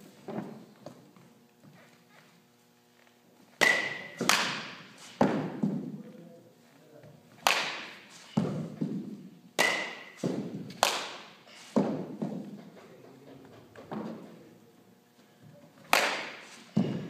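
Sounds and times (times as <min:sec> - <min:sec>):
baseball bat cracking: 0:03.6 - 0:06.0, 0:07.3 - 0:12.8, 0:15.8 - 0:17.0.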